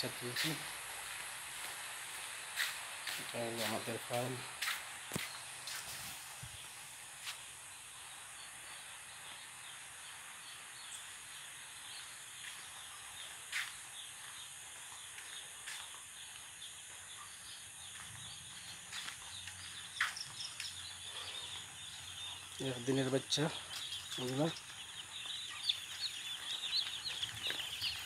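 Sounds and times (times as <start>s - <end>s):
chicks peeping: 0.1s - 0.7s, 11.9s - 28.0s.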